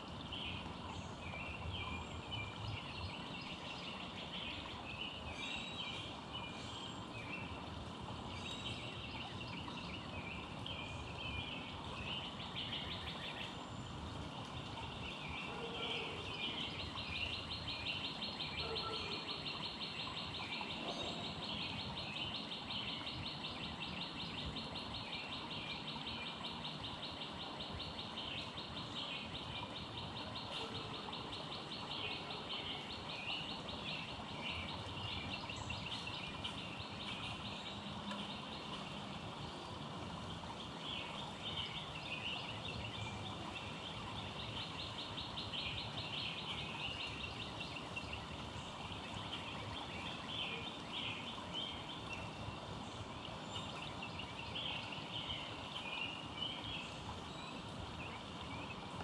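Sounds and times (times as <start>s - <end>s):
outdoor background hiss: 0.0s - 59.0s.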